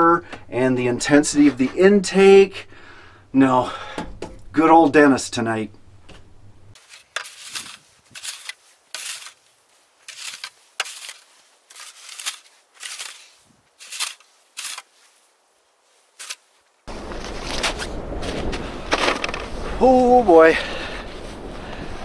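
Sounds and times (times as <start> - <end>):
snow shovel scraping in snow: 6.8 - 19.6
steady rushing noise: 16.9 - 22.0.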